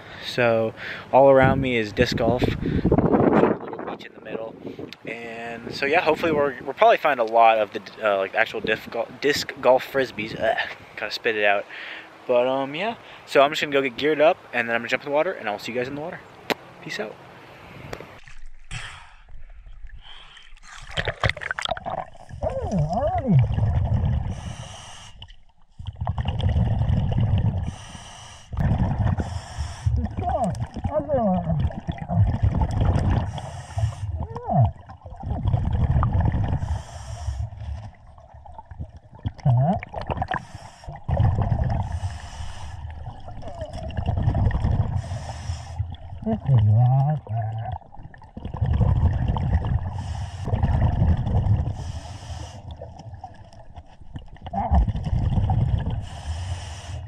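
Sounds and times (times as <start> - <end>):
diver inhaling through regulator: 18.6 - 19.4, 24.1 - 25.3, 26.6 - 30.1, 33.0 - 34.2, 35.8 - 38.0, 40.2 - 43.0, 44.6 - 46.0, 49.8 - 52.9, 55.7 - 57.0
exhaled bubbles rumbling: 19.3 - 27.9, 28.5 - 56.3
breathing regulator hisses: 24.4 - 25.2, 27.6 - 28.5, 36.6 - 37.5, 45.0 - 45.8, 51.8 - 52.6.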